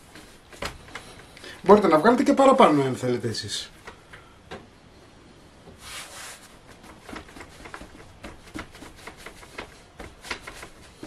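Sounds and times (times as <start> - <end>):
brief brushing hiss: 5.8 - 6.5
fingertips patting dough: 6.5 - 11.0.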